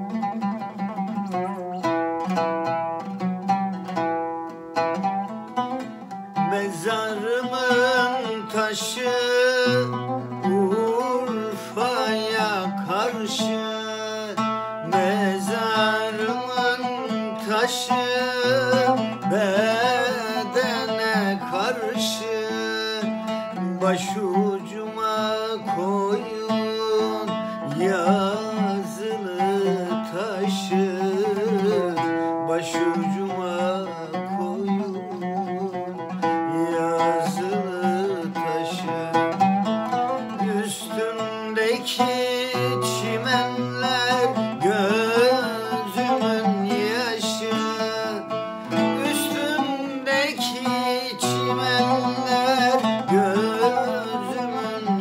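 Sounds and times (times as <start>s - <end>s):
man singing folk song: 0.0s - 55.0s
oud plucked strings: 0.0s - 55.0s.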